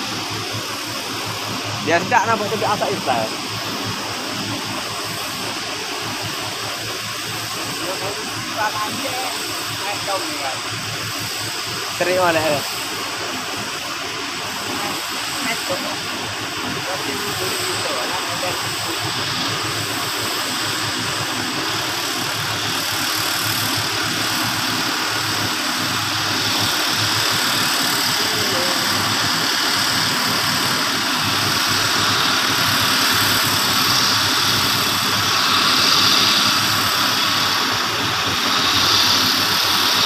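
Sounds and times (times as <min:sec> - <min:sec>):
heavy diesel truck engine: 0:14.5 - 0:40.0.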